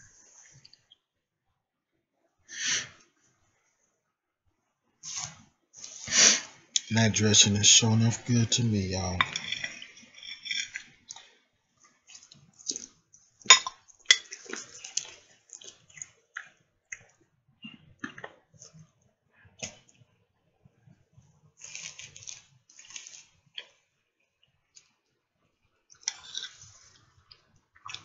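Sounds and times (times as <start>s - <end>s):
person chewing food: 12.0s - 13.0s, 13.8s - 18.4s, 21.6s - 24.9s, 25.9s - 28.0s.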